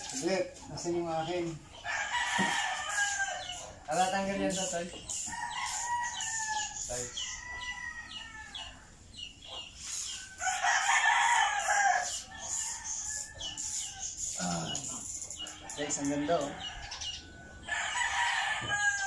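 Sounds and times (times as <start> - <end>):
rooster crowing: 1.8 - 4.7, 5.3 - 8.9, 10.4 - 14.8, 15.6 - 19.0.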